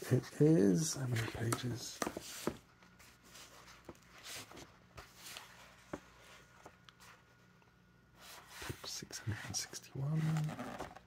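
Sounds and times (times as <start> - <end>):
faint steady hum: 0.0 - 11.0
book pages turning: 1.0 - 7.4, 10.0 - 11.0.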